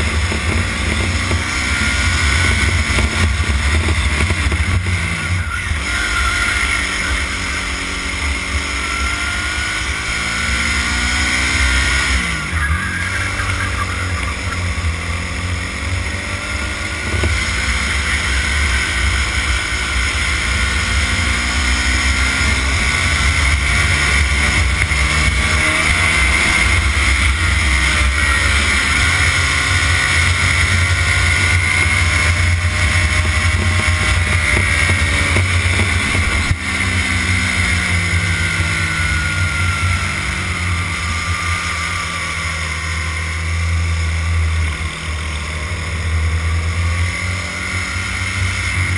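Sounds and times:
go-kart engine revving: 0:00.0 - 0:48.9.

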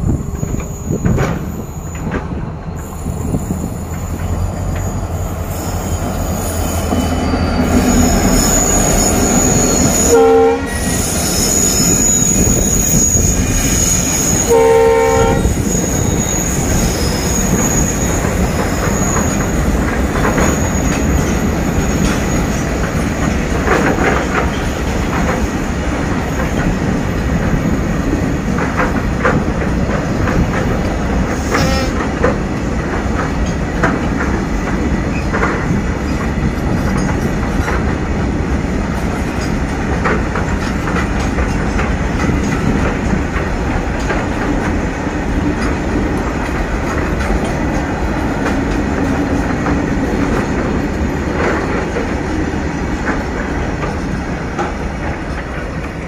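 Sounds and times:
diesel locomotive engines rumbling: 0:00.0 - 0:56.0
train wheels clattering over rails: 0:00.0 - 0:56.0
high wheel squeal: 0:00.3 - 0:02.1, 0:02.8 - 0:22.6
train air horn: 0:09.9 - 0:11.1, 0:14.4 - 0:15.6, 0:31.4 - 0:32.1.

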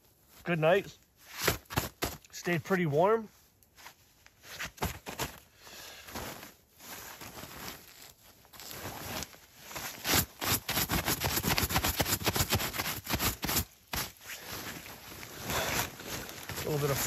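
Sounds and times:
sleeping bag rustling: 0:03.7 - 0:17.0.

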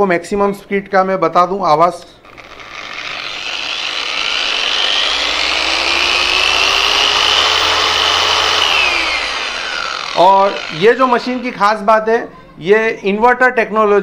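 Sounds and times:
electric polisher motor whine: 0:02.2 - 0:11.8.

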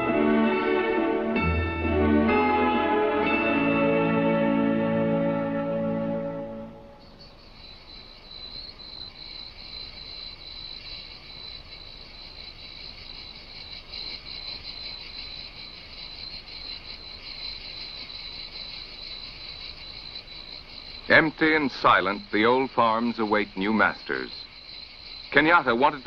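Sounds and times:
insects chirring in a trill: 0:05.3 - 0:26.0.

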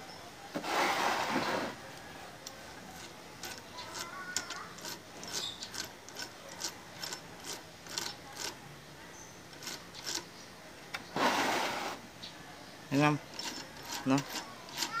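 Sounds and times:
crankcase scraping on plastic crate: 0:00.6 - 0:01.8, 0:11.1 - 0:12.0
metal clicks of gears turned by hand: 0:03.0 - 0:08.6, 0:09.5 - 0:10.3, 0:13.3 - 0:15.0.

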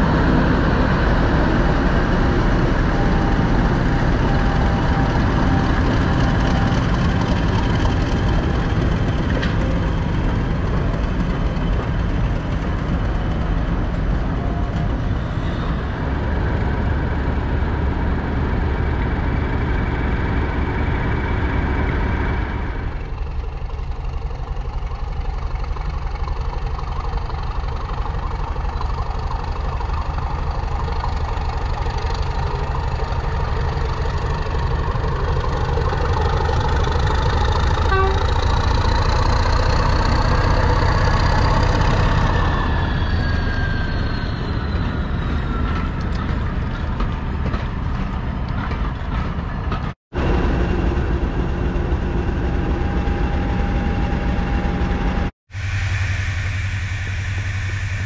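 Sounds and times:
diesel locomotive engine rumbling: 0:00.0 - 0:58.0
engine whine rising and falling: 0:50.2 - 0:58.0.

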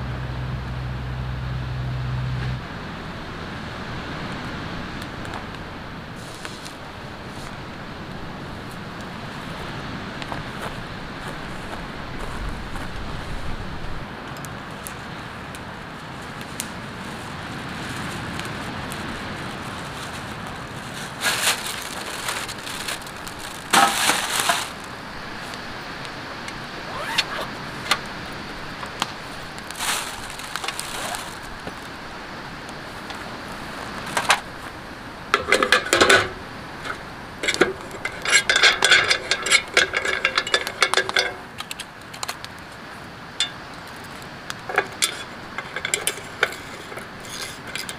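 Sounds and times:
rustles and knocks: 0:18.0 - 0:24.9, 0:28.8 - 0:31.9, 0:35.4 - 0:42.5, 0:44.6 - 0:47.9
metal clinking and rattling: 0:21.3 - 0:24.8, 0:35.4 - 0:41.8, 0:43.4 - 0:43.7, 0:44.7 - 0:47.9.

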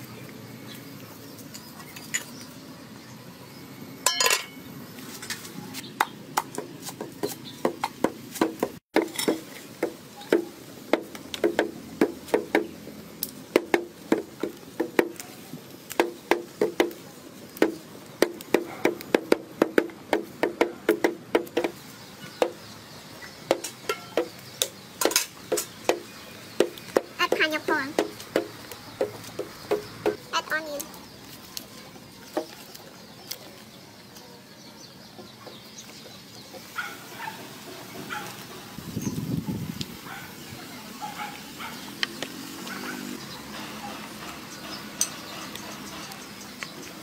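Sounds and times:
utensils knocking on cookware: 0:04.0 - 0:04.6.

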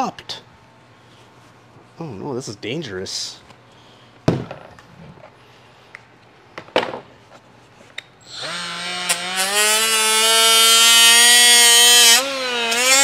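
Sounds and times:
rotary tool whining: 0:08.2 - 0:13.0.

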